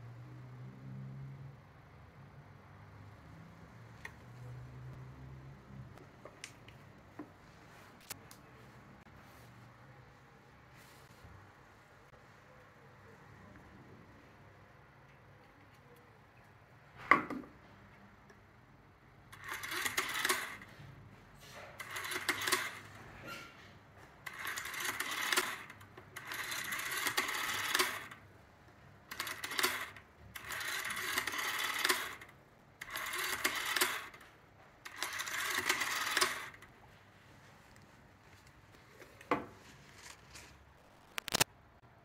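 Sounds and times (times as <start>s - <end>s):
rotary telephone dial whirring: 19.2s - 20.8s, 21.4s - 28.3s, 29.0s - 36.7s.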